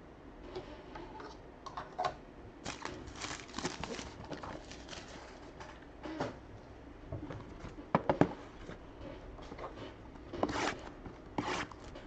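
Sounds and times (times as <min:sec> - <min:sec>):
card packaging crinkling: 0:02.6 - 0:05.6.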